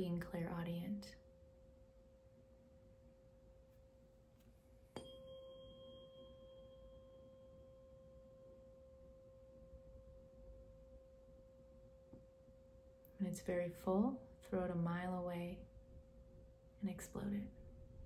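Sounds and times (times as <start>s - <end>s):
tuning fork ringing: 4.8s - 13.0s.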